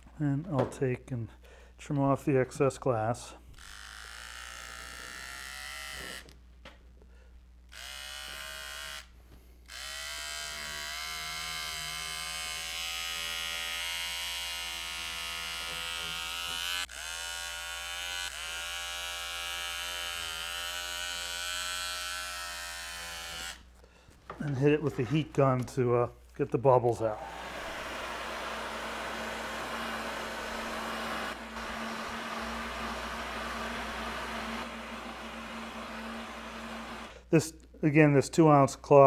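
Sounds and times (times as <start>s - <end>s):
power cutter motor whining: 27.0s - 37.2s.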